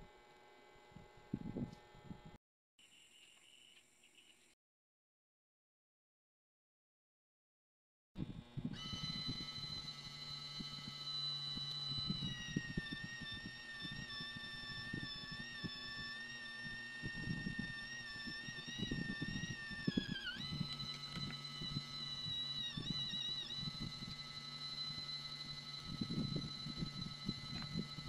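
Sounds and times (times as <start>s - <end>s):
drill press motor whining: 8.2s - 28.0s
drill bit grinding into metal: 8.8s - 28.0s.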